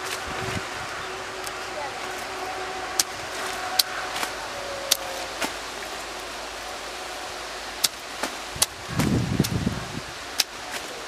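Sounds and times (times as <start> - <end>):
steady background hiss: 0.0 - 11.0
sickle snapping through stalks: 3.0 - 6.4, 7.8 - 9.6, 10.3 - 11.0.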